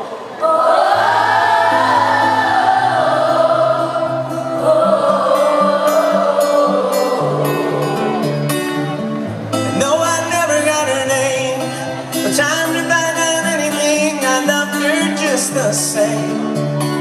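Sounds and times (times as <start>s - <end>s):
choir-like singing voices: 0.0s - 8.2s
pop-rock band music: 1.8s - 17.0s.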